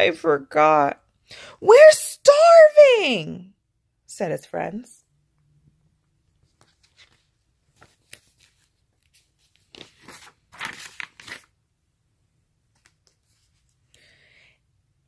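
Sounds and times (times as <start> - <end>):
book pages turning: 6.3 - 11.6, 12.7 - 13.8.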